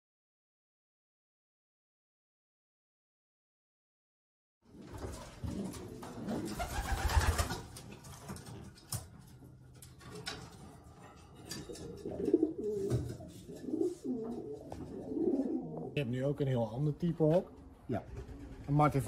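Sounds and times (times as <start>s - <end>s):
pigeons cooing: 4.8s - 7.8s, 11.5s - 16.0s.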